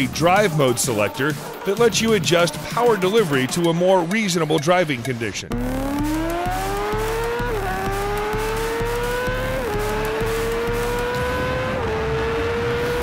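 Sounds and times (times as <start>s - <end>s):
motorcycle engine accelerating hard: 5.5s - 13.0s.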